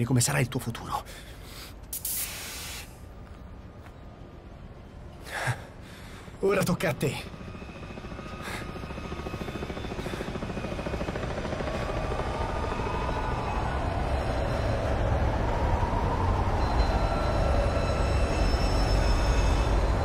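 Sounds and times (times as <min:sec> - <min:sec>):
faint wavering whine: 0:06.2 - 0:20.0.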